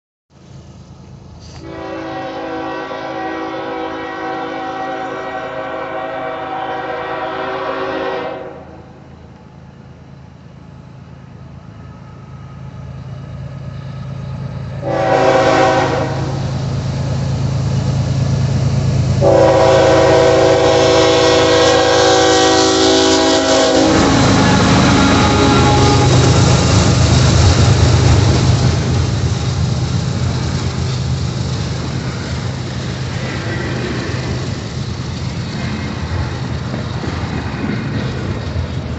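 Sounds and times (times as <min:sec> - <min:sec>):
train rumbling and rail clatter: 0:00.3 - 0:38.9
locomotive air horn: 0:01.5 - 0:09.0, 0:14.8 - 0:16.6, 0:19.2 - 0:26.8.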